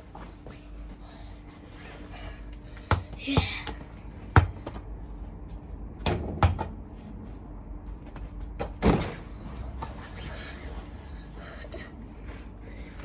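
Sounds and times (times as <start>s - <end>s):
football thuds: 4.3s - 4.8s, 6.0s - 6.8s, 8.1s - 9.3s.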